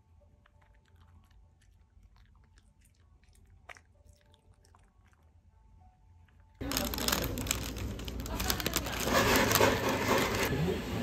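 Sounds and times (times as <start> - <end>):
dog chewing kibble: 0.3 - 5.4.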